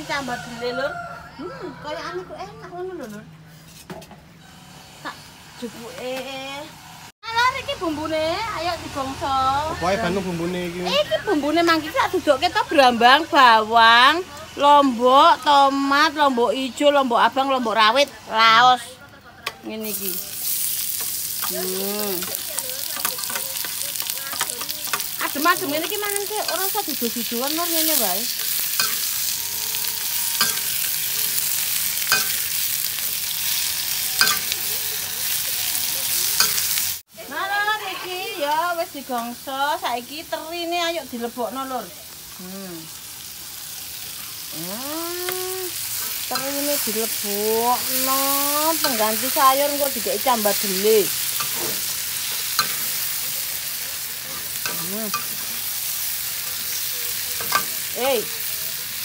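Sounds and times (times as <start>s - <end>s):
vegetables sizzling in hot oil: 0.0s - 0.7s, 4.4s - 18.9s, 19.6s - 59.0s
metal spatula scraping a pan: 20.0s - 37.0s, 45.3s - 57.9s
metal spatula striking wok: 21.0s - 29.4s, 30.4s - 32.6s, 34.1s - 34.6s, 36.4s - 36.8s, 51.3s - 53.1s.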